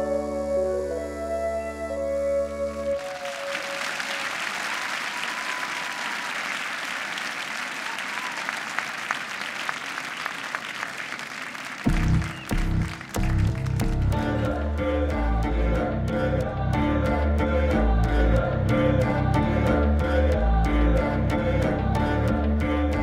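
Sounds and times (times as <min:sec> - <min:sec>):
crowd applauding: 0:02.9 - 0:14.3
music with heavy low beat: 0:11.9 - 0:14.4.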